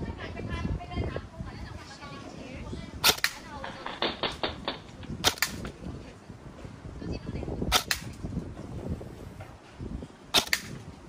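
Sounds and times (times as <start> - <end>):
airsoft gun snaps: 3.0 - 3.4, 5.2 - 5.7, 7.7 - 8.2, 10.4 - 10.8.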